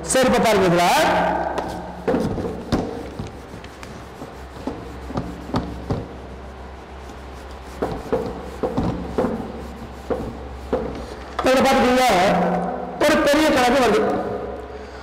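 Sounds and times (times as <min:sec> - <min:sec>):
cloth rubbing on whiteboard: 0:01.6 - 0:11.2
short knocks: 0:07.8 - 0:09.5.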